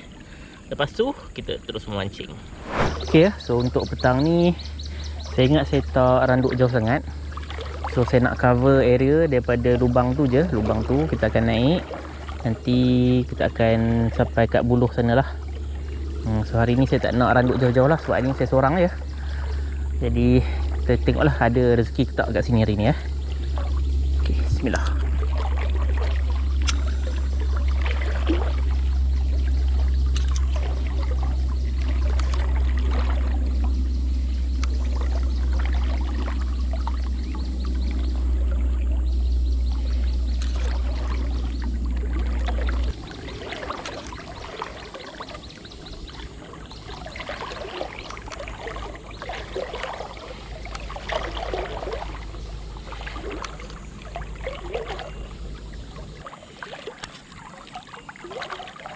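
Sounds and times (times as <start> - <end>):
river water splashing: 0.0 - 58.9
heavy low rumble: 1.4 - 7.3, 12.4 - 44.4.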